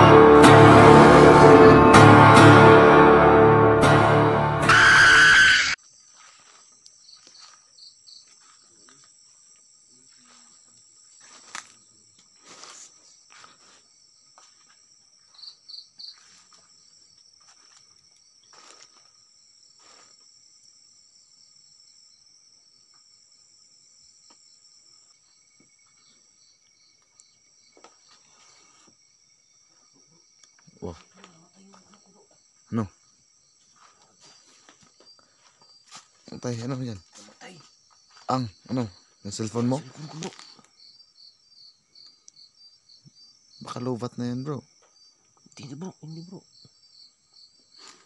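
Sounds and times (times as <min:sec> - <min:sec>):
music: 0:00.0 - 0:05.8
crickets trilling: 0:04.7 - 0:48.0
insect chirps: 0:04.7 - 0:48.0
footsteps on dry leaves: 0:06.1 - 0:07.7, 0:11.2 - 0:11.8, 0:12.4 - 0:14.8, 0:16.1 - 0:16.8, 0:17.4 - 0:17.9, 0:18.5 - 0:19.1, 0:33.7 - 0:36.4.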